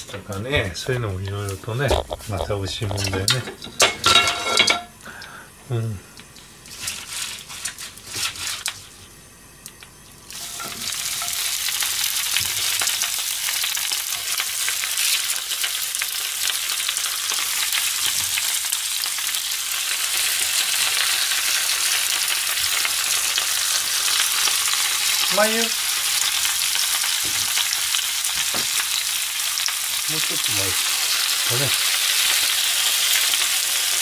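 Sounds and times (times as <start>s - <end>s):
cabbage sizzling in oil: 0.0s - 5.2s, 6.2s - 9.4s, 10.2s - 34.0s.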